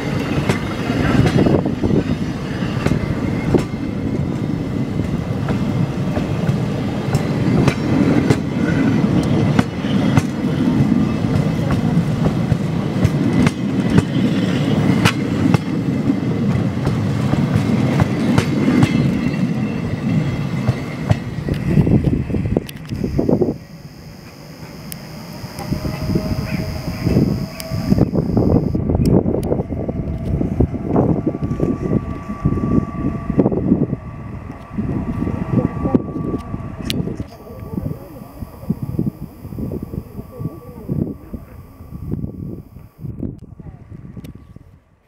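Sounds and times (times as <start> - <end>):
train wheels rumbling on rails: 0.0 - 22.8, 28.9 - 37.3.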